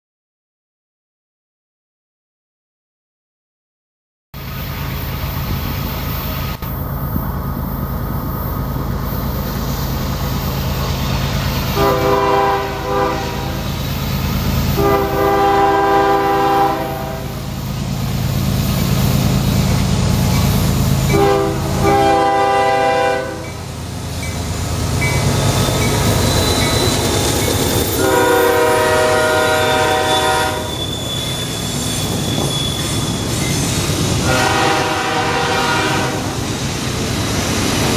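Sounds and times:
diesel locomotive rumbling: 4.4 - 37.9
freight cars rolling past: 4.7 - 37.9
train air horn blasts: 11.7 - 13.7, 14.7 - 17.4, 21.1 - 23.6, 27.9 - 31.3, 34.1 - 36.4.

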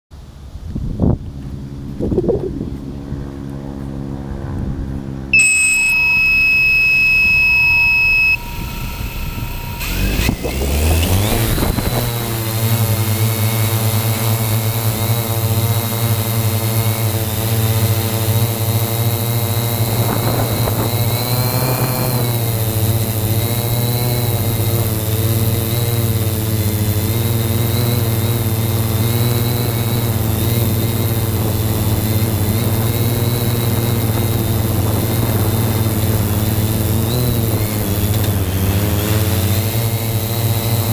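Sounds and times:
drone propellers whining: 1.3 - 40.9
loud electronic beep: 5.4 - 11.2.

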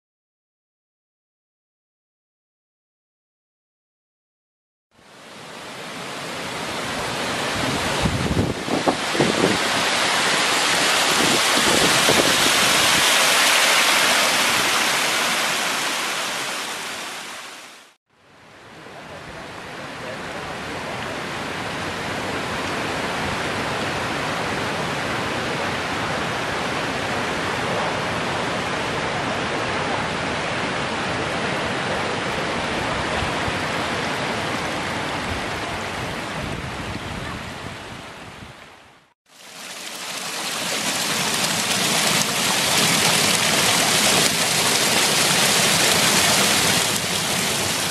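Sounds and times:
water rushing over rocks: 5.2 - 18.0, 39.3 - 47.9.

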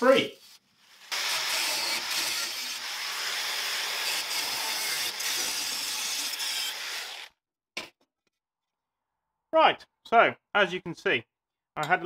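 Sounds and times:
angle grinder cutting steel: 0.9 - 7.4.

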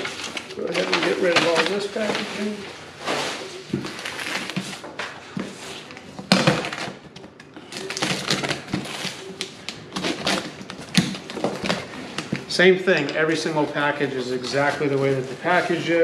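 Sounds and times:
packing liner rustling and crinkling: 0.0 - 16.0.

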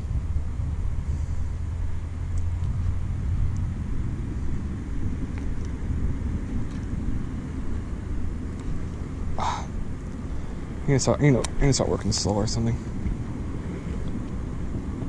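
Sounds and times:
low outdoor rumble: 0.0 - 15.0
faint light ticks: 2.3 - 2.8.

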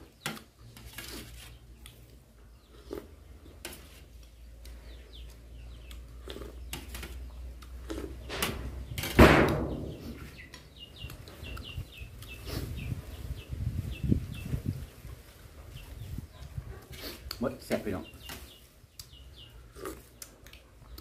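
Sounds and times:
man chewing food: 0.0 - 8.3, 19.0 - 21.0
birds chirping: 0.0 - 21.0.

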